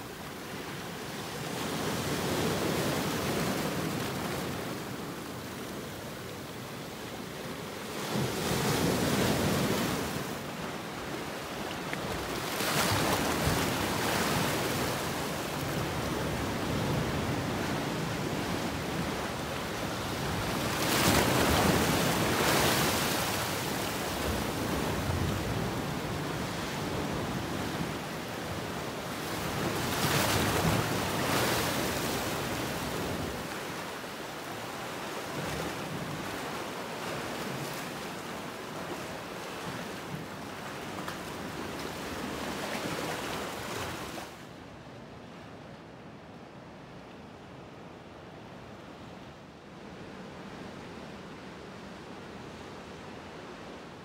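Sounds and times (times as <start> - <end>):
surf washing over rocks: 0.0 - 39.4.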